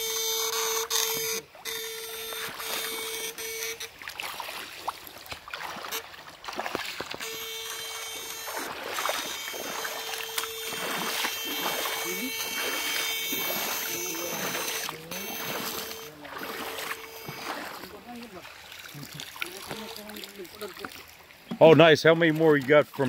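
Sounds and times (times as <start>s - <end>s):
electrical whine from shocker: 0.0s - 4.0s, 7.2s - 18.1s
water sloshing and splashing: 0.2s - 23.0s.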